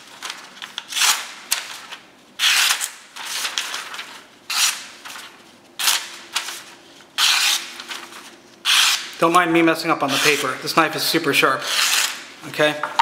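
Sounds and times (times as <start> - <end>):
knife slicing paper: 0.8 - 9.2.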